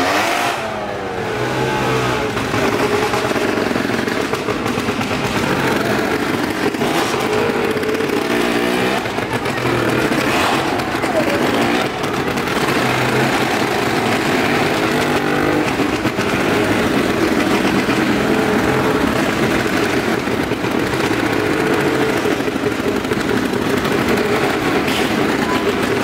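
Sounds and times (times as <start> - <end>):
motorcycle engines running: 0.0 - 26.0.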